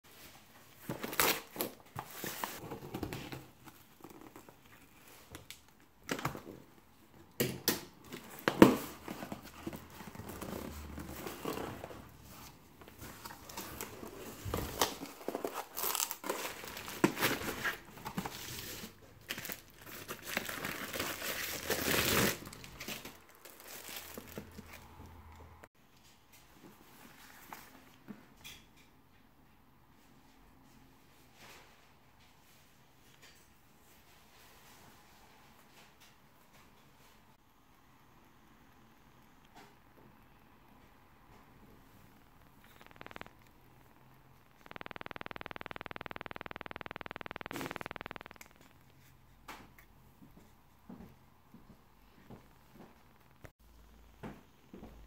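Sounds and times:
bubble wrap crinkling: 8.3s - 24.9s
packing tape tearing: 14.6s - 24.6s
sharp clicks: 42.3s - 49.0s.

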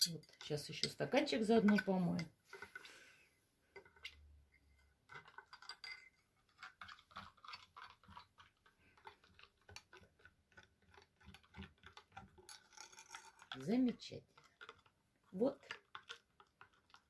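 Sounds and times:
spoon clinking against glass: 5.6s - 6.2s.

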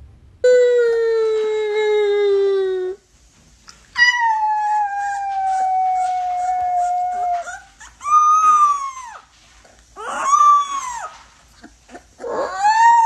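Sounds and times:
puppy howling: 4.0s - 9.3s, 10.0s - 11.2s, 12.2s - 13.0s.

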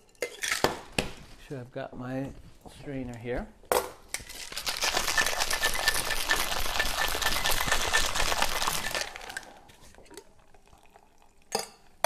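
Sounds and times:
ice rattling in cocktail shaker: 4.3s - 10.0s.

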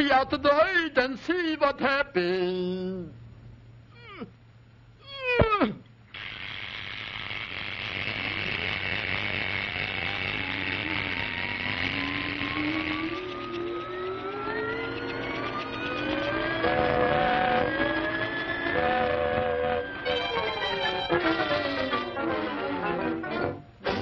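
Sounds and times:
steady rushing hiss: 6.1s - 12.6s
thin rising whistling tones: 9.8s - 22.2s
downward-swooping whistle tones: 9.9s - 22.2s.

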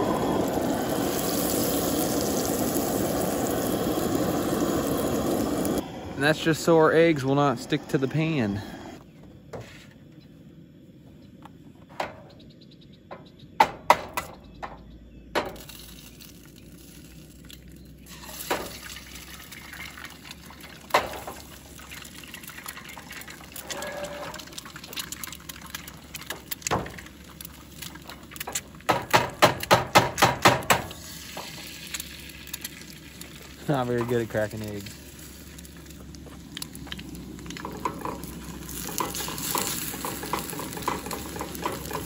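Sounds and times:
butter sizzling in a frying pan: 0.0s - 5.8s, 15.5s - 42.0s
eggs cracked on pan: 15.3s - 42.0s
taps against pan: 38.9s - 42.0s.

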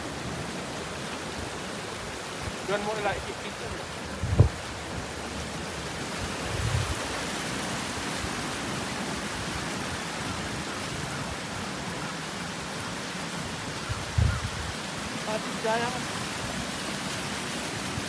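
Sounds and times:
stream rushing over rocks: 0.0s - 18.0s
short low thump: 4.3s - 4.6s.

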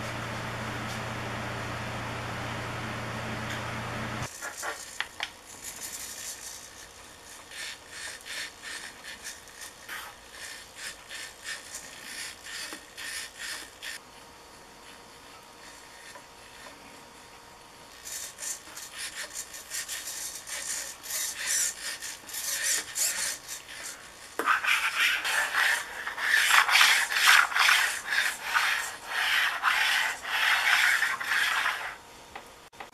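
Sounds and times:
cap rubbing along tabletop: 18.1s - 32.0s.

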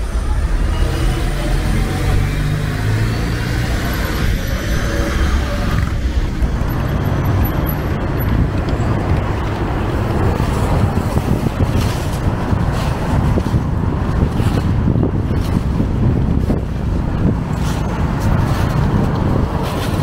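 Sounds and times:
cars driving past: 0.0s - 14.6s.

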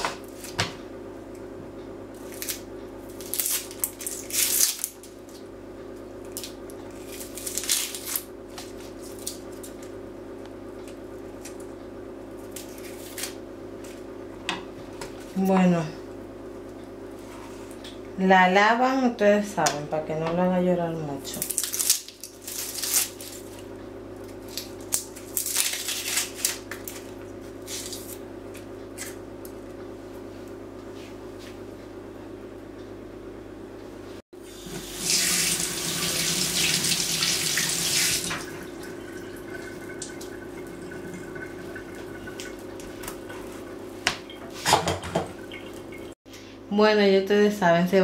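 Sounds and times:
kitchen tap running: 34.4s - 46.2s.

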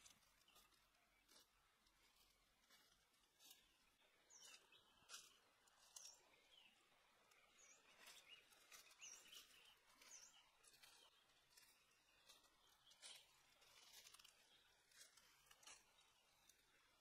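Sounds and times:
footsteps on dry leaves: 0.0s - 6.6s, 7.6s - 16.7s
high bird chirps: 7.5s - 14.0s.

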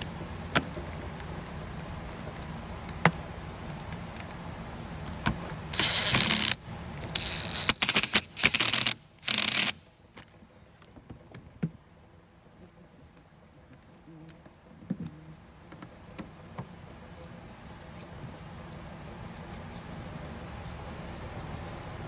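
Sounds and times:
cordless drill bursts: 5.8s - 6.6s, 7.2s - 9.8s.

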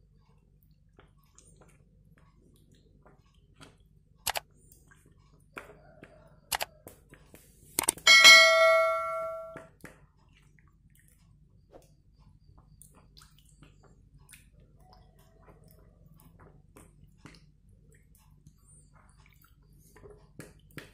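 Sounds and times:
mouse clicks: 7.8s - 8.0s
bell ding: 8.1s - 9.6s.

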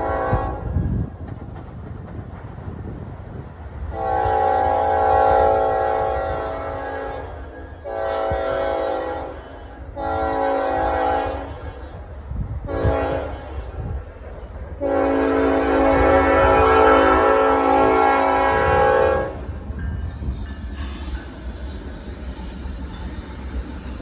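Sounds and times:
locomotive air horn blasts: 0.0s - 0.8s, 3.9s - 11.9s, 12.6s - 13.8s, 14.8s - 19.5s.

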